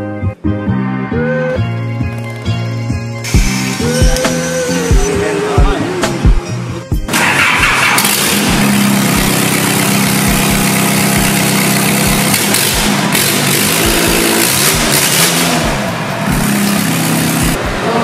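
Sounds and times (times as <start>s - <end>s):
diesel engine revving: 3.2s - 18.0s.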